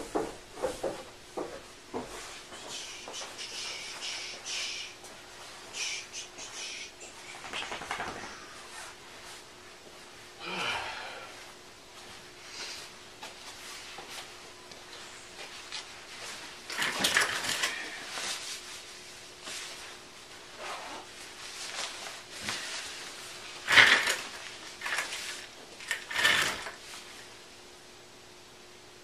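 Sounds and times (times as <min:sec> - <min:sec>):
clothes rustling: 0:00.0 - 0:10.4, 0:11.3 - 0:27.4.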